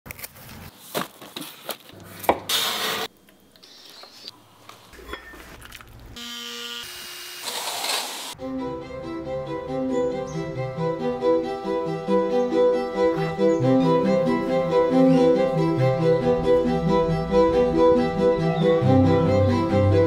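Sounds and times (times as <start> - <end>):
sander motor whine: 6.2 - 7.7.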